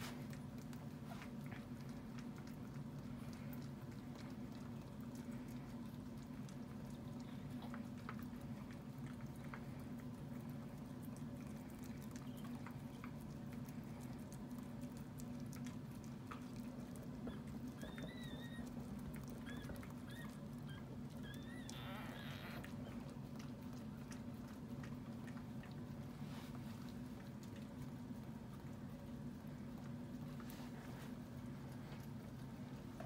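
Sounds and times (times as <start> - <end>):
steady low hum: 0.0 - 33.0
puppies squeaking: 17.3 - 18.7, 19.4 - 22.6.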